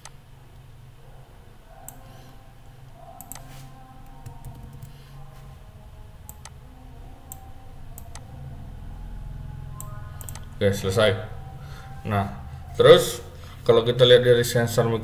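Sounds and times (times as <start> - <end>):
low steady hum: 0.0 - 15.0
computer mouse clicking: 1.9 - 2.1, 3.2 - 5.0, 6.3 - 6.6, 8.0 - 8.3, 9.8 - 10.6.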